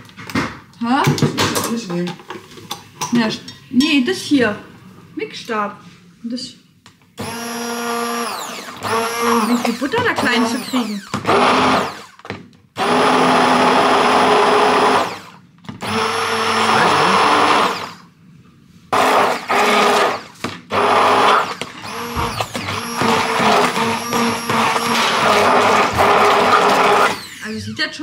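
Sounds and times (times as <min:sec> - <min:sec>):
stick blender motor whine: 0:07.2 - 0:18.1, 0:19.0 - 0:27.7.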